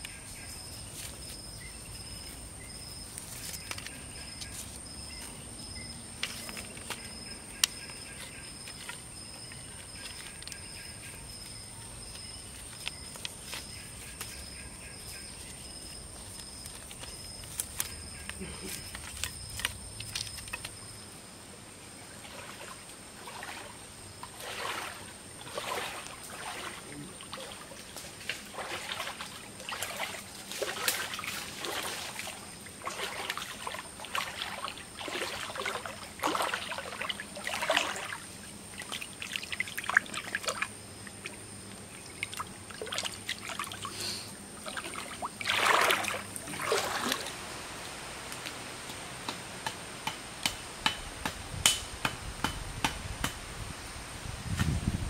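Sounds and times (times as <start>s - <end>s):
person wading through stream: 22.2s - 47.5s.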